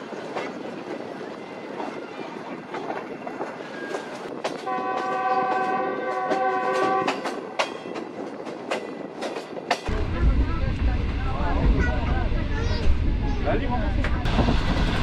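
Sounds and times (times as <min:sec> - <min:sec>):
train wheels clicking over rail joints: 0:00.0 - 0:10.1
locomotive horn blast: 0:04.7 - 0:07.3.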